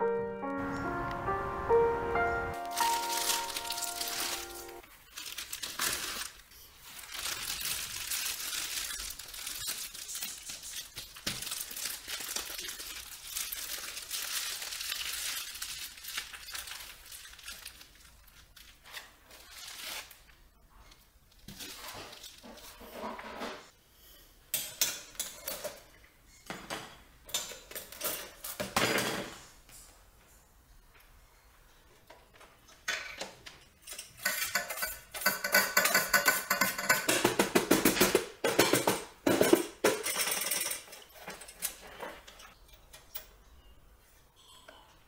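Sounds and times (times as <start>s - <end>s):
plastic bag crinkling: 2.6s - 20.4s.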